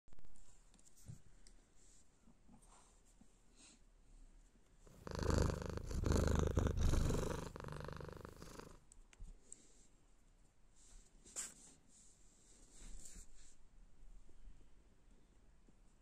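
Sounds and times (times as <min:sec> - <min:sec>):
cat purring: 0:04.9 - 0:08.8.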